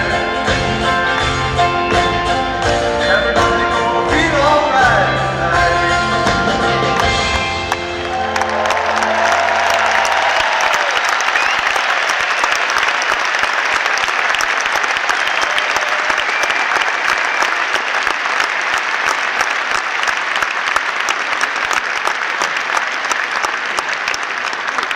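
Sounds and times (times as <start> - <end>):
crowd applauding: 6.8 - 24.9.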